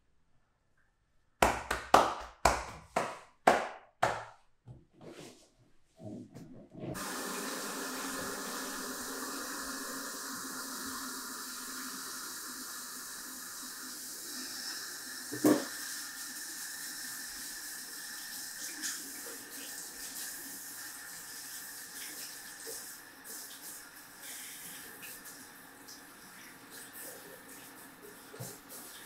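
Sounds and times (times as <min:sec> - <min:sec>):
water running from a tap: 0:07.0 - 0:29.0.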